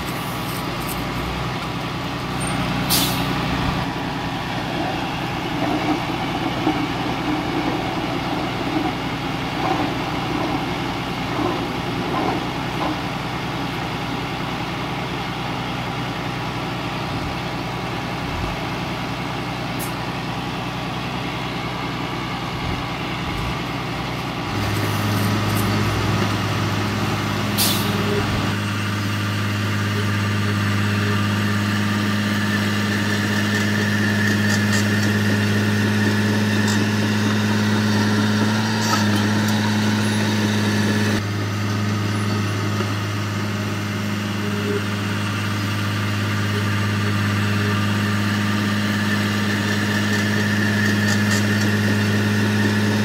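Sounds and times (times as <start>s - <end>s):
heavy machinery diesel engines: 0.0s - 53.0s
short air hisses: 2.9s - 3.3s, 27.6s - 28.0s.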